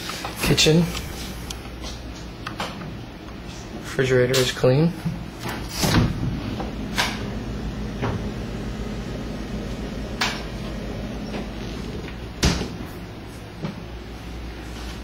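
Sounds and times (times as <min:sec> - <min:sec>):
steady low hum: 0:00.0 - 0:15.0
refrigerator door shutting: 0:05.5 - 0:08.4, 0:10.1 - 0:13.0.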